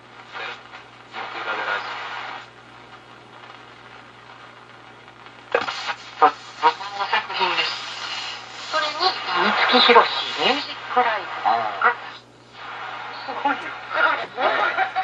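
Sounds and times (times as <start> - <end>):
garbled radio station audio: 0.0 - 15.0
radio static and hiss: 0.0 - 15.0
radio voice speaking: 0.3 - 2.5, 5.5 - 15.0.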